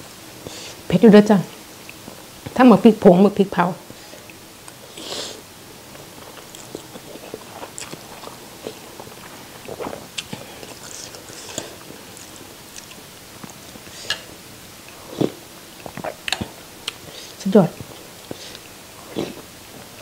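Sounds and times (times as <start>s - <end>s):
chewing noodles mouth clicks: 6.2s - 14.2s.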